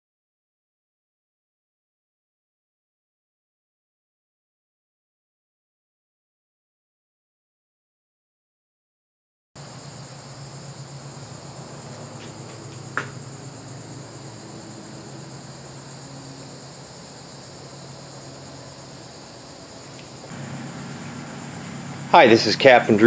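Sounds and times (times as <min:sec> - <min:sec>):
insects chirring: 0:09.6 - 0:23.0
low background hum: 0:09.6 - 0:23.0.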